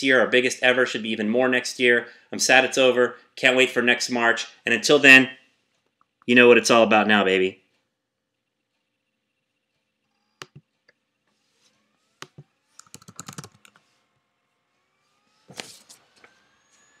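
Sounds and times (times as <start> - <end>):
computer keys clicking: 10.4 - 10.7, 12.2 - 13.8.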